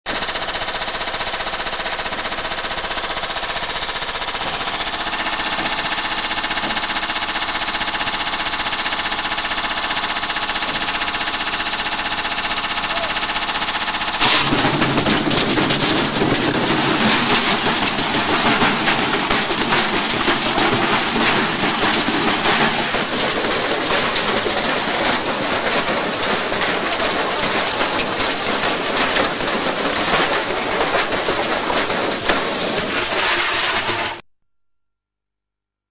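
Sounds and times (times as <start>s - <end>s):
washing machine motor whine: 0.1s - 34.2s
brick banging in drum: 14.2s - 34.2s.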